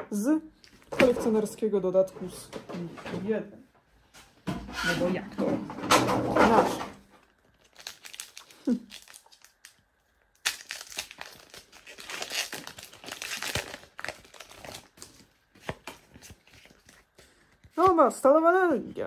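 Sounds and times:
foil wrapper tearing and crinkling: 7.2 - 17.2.

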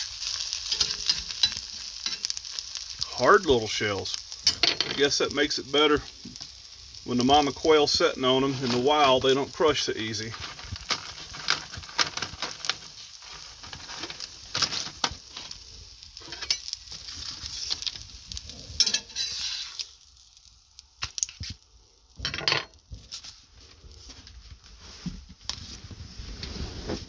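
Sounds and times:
eggs sizzling and popping in pan: 0.0 - 23.7
short scrape: 19.1 - 19.8.

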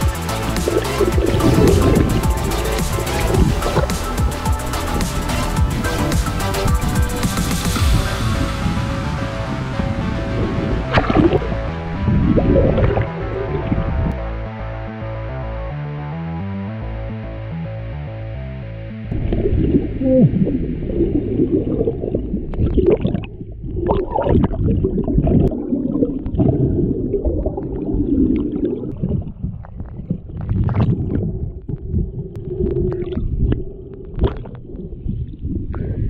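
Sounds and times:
muffled underwater river rushing: 0.0 - 14.2, 19.0 - 36.0
stones knocking underwater: 10.9 - 11.5, 21.6 - 35.4.

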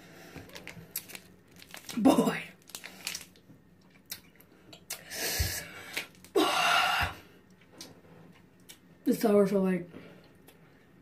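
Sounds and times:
person breathing out hard: 5.0 - 7.3.

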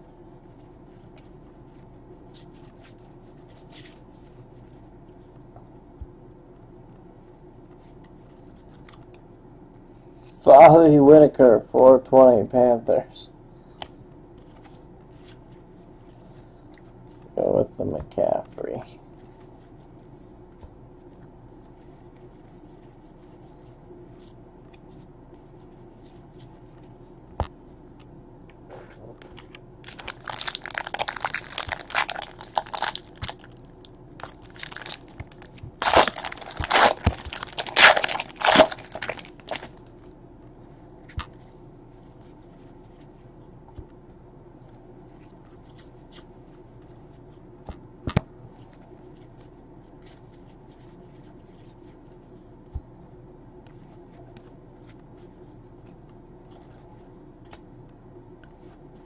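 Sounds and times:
card pack wrapper crinkling and tearing: 29.8 - 39.8
faint clicks of cards handled: 57.4 - 58.8.

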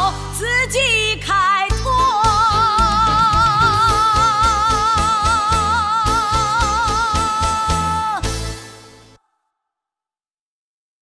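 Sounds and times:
woman singing with vibrato: 0.0 - 8.4
band backing beat: 2.6 - 5.4.

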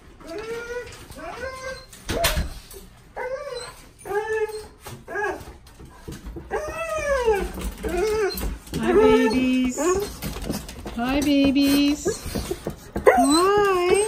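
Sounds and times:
dogs whining and howling: 0.2 - 5.6, 6.4 - 10.4, 11.8 - 14.0.

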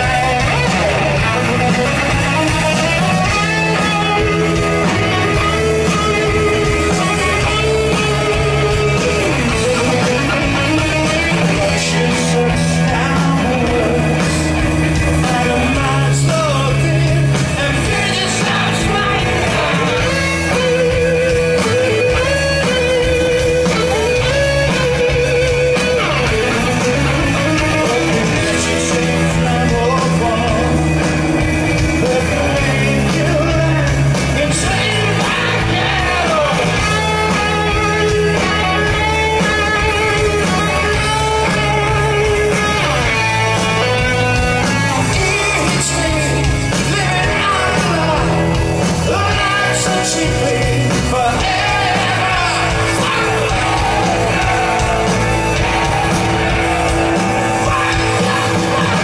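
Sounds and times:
man singing: 0.0 - 24.8, 25.5 - 59.0
drums: 0.0 - 59.0
electric guitar: 0.0 - 59.0.

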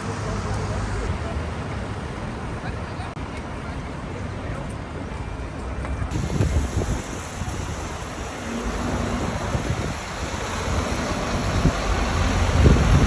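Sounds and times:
city street traffic: 0.0 - 13.0
wind buffeting microphone: 6.1 - 13.0.

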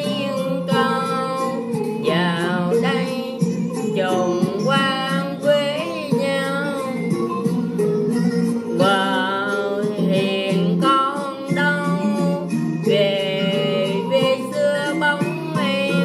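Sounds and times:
person singing long wavering notes: 0.0 - 7.4, 8.8 - 16.0.

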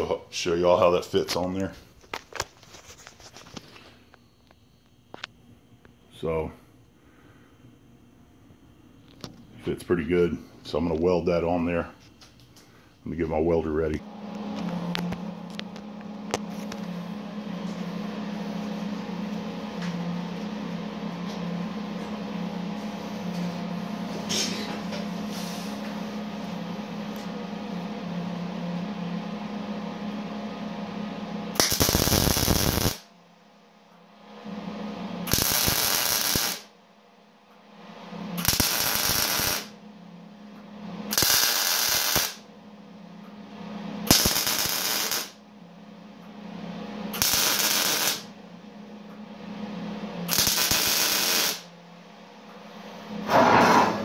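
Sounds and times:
welder steady hum: 0.0 - 54.0
welder arc crackling: 31.5 - 33.1, 35.2 - 36.7, 38.3 - 39.8, 41.1 - 42.4, 44.0 - 45.4, 47.1 - 48.3, 50.3 - 51.7.

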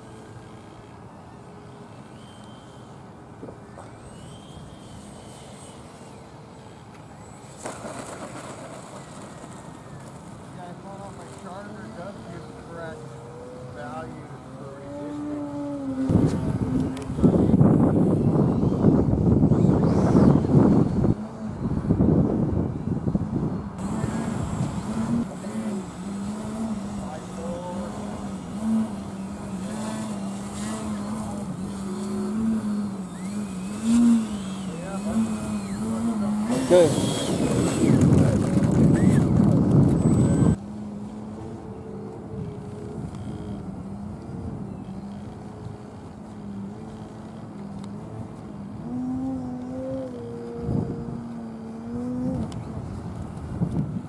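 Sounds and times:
model jet engine rushing: 0.0 - 54.0
high jet whine: 10.8 - 53.0.

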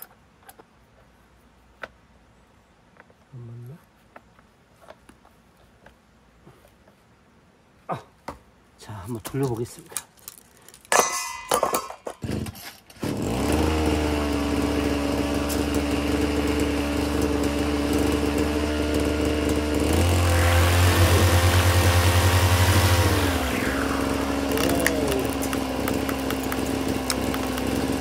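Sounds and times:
brush cutter engine: 12.1 - 28.0
spinning head whir: 13.0 - 28.0.

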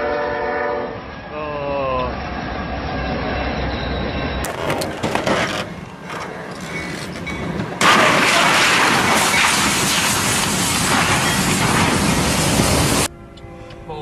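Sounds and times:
train running through wreckage: 2.0 - 13.1
train crashing into trailer: 4.4 - 12.9.

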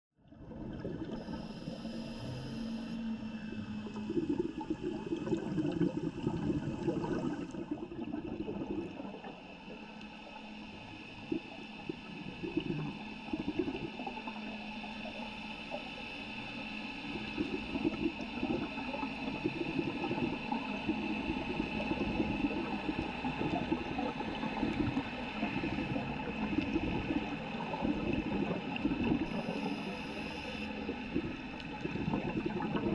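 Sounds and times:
underwater crackling and gurgling: 0.2 - 32.9
underwater hiss: 5.7 - 32.9.

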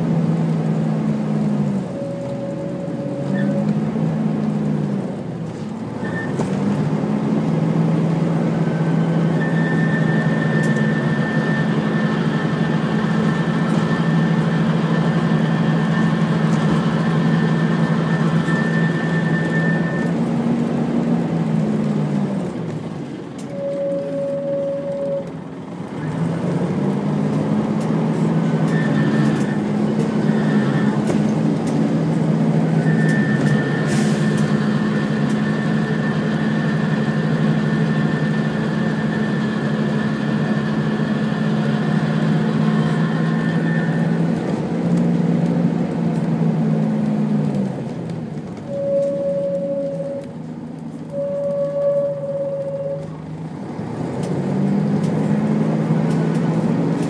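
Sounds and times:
bus engine drone: 0.0 - 57.0
thin high whine: 48.7 - 50.3, 51.1 - 53.2.

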